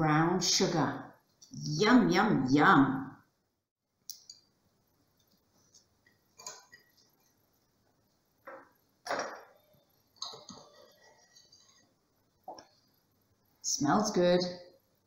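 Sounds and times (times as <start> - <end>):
tableware clinking on wooden table: 8.5 - 9.6, 10.2 - 10.9.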